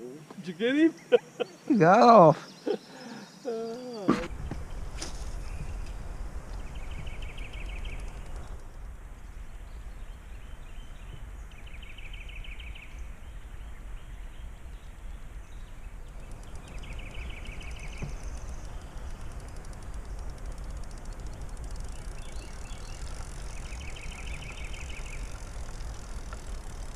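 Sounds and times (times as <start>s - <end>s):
bird trilling: 0.8s - 4.4s.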